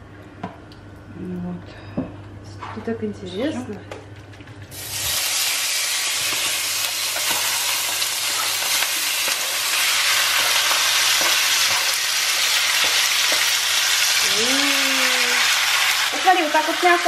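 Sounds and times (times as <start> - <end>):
beef sizzling in frying pan: 4.7 - 17.0.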